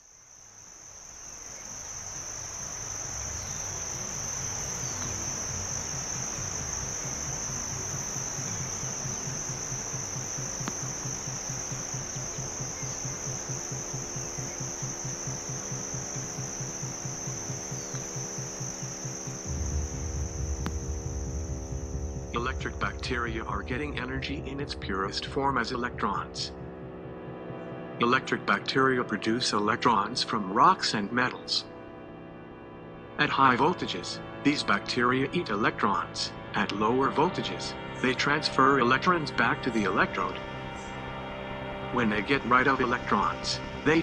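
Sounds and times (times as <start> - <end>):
high-pitched insect chorus: 0.0 - 27.6, 33.2 - 44.0
low pulsing drone: 0.8 - 29.8, 36.3 - 44.0
steady low tones: 1.6 - 28.7
deep hum: 1.8 - 28.2.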